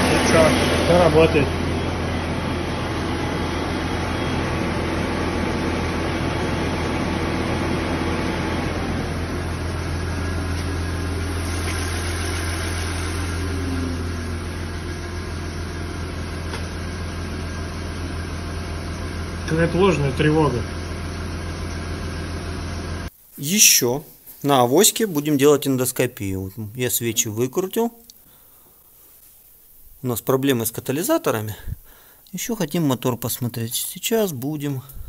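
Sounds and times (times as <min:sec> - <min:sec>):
electric cooling fan running: 0:00.0 - 0:23.1.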